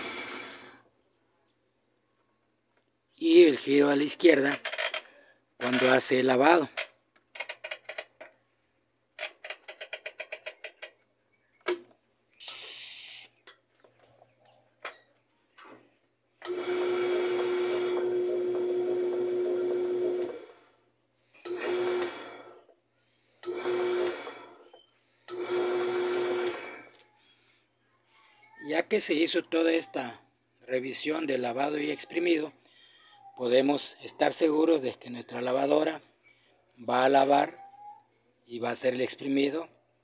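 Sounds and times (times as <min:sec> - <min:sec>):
brief hiss: 0:00.0 - 0:00.8, 0:12.4 - 0:13.3
washing machine motor whirring: 0:16.4 - 0:20.6, 0:21.5 - 0:22.5, 0:23.4 - 0:24.6, 0:25.3 - 0:26.9.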